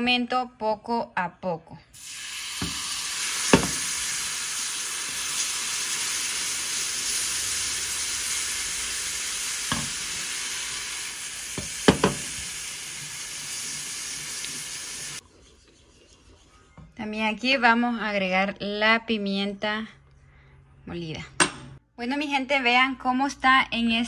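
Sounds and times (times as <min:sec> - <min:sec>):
broth sizzling in a frying pan: 0:02.0 - 0:15.2
spoon knocking against pan: 0:03.5 - 0:03.8, 0:09.7 - 0:10.0, 0:11.6 - 0:12.4.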